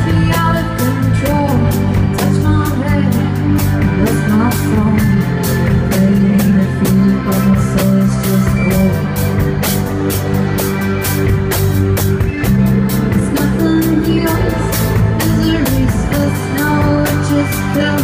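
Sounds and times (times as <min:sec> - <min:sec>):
woman singing into microphone: 0:00.0 - 0:09.2, 0:13.1 - 0:18.0
drum kit: 0:00.0 - 0:18.0
electric bass: 0:00.0 - 0:18.0.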